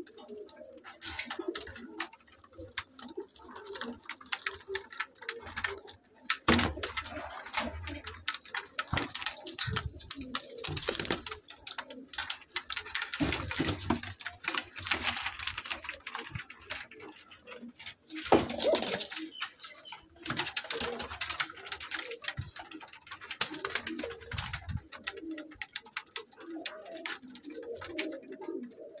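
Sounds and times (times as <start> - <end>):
clicks and rustling of wings: 0.0 - 29.0
pigeons cooing: 0.0 - 29.0.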